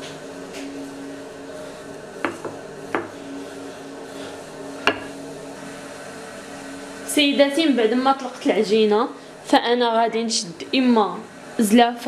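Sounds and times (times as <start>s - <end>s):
steady low hum: 0.0s - 12.0s
rolling pin knocking on stone: 2.2s - 3.1s.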